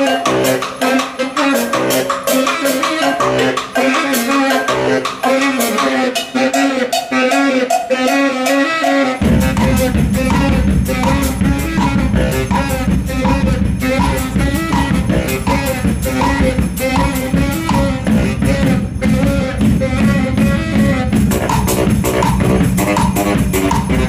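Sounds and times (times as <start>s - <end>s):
baritone saxophone: 0.0s - 24.0s
marching drum beat: 9.2s - 24.0s.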